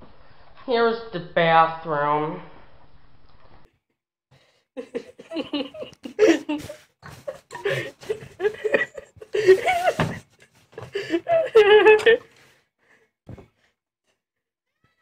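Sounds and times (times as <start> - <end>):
person laughing: 4.8 - 12.3.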